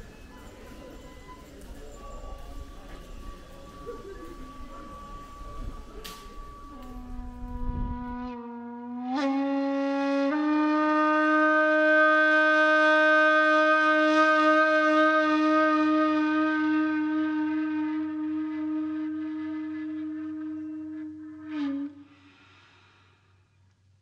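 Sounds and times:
wind instrument slow notes: 0.0s - 23.5s.

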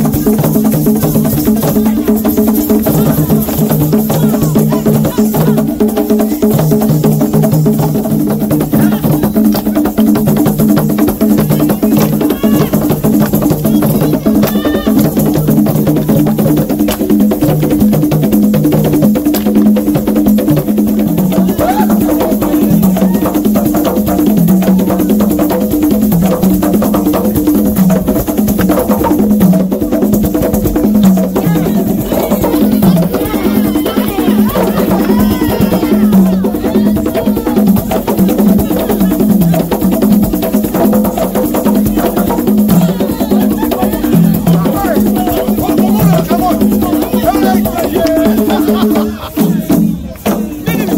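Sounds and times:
fast hand drumming: 0.0s - 50.9s
voices singing over drums: 0.0s - 50.9s.

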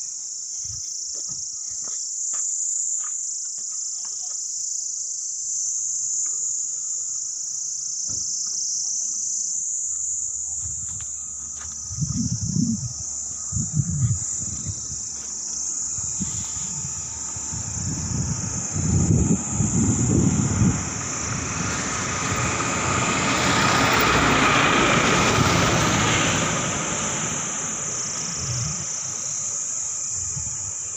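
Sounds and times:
insects chirring: 0.0s - 30.9s
low rumble: 10.4s - 29.2s.

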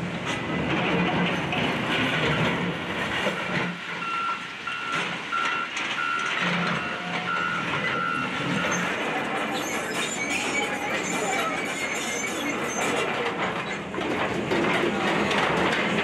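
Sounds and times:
machinery engines humming: 0.0s - 16.0s
backup alarm beeping: 3.4s - 8.9s
debris clattering and scraping: 4.9s - 16.0s.

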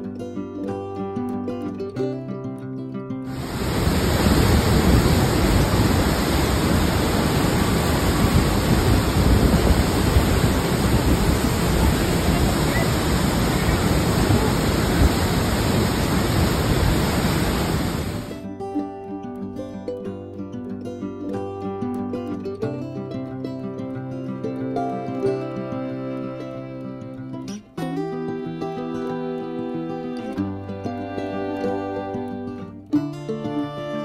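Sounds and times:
waterfall rushing: 3.3s - 18.4s.

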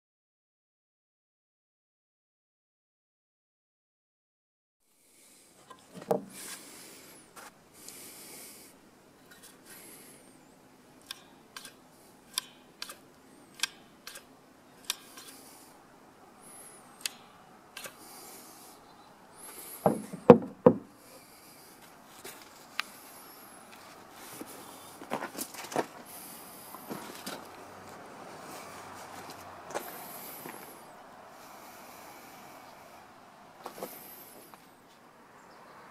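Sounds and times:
louder knocks: 19.8s - 20.9s.

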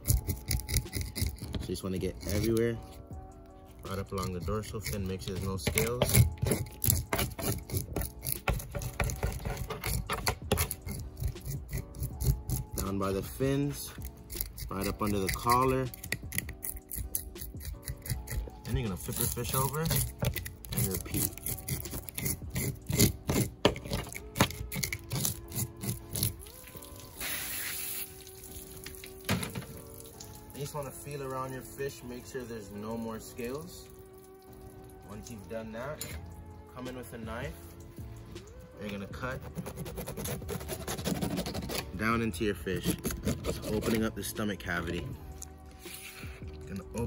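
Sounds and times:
scaling tool scraping fish scales: 0.0s - 3.0s, 3.8s - 28.1s, 38.9s - 47.0s
short hiss: 27.2s - 28.1s.

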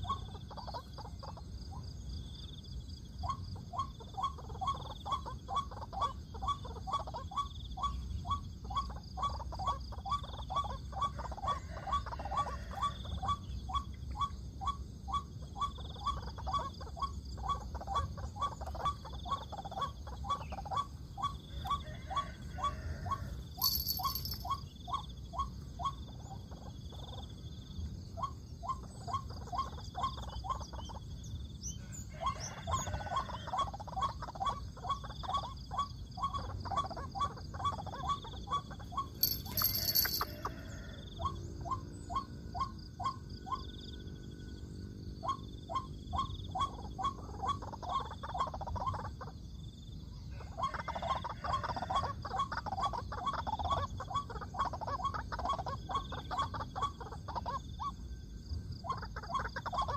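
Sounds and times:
waterhen croaking calls: 3.2s - 24.6s, 31.7s - 43.6s, 50.4s - 57.9s.

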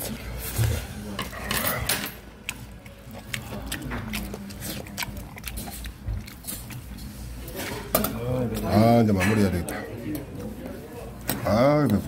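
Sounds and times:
person chewing: 0.0s - 7.5s.

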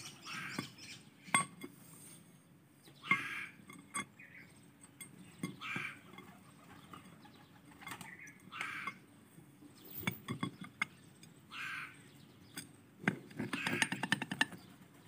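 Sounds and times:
bird calling: 0.0s - 1.5s, 2.8s - 3.6s, 5.3s - 9.0s, 11.5s - 12.7s, 13.3s - 14.8s.

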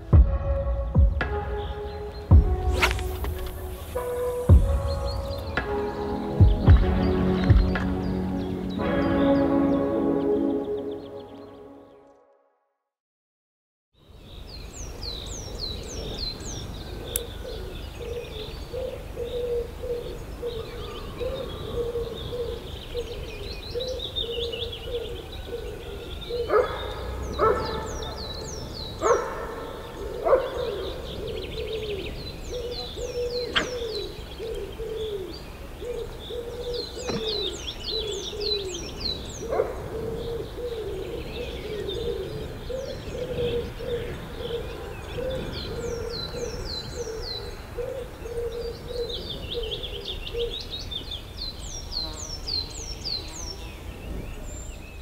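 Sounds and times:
birds chirping and trilling: 0.0s - 12.4s, 14.0s - 55.0s
low bird call: 16.0s - 50.6s
sharp knocks: 37.1s - 37.4s.

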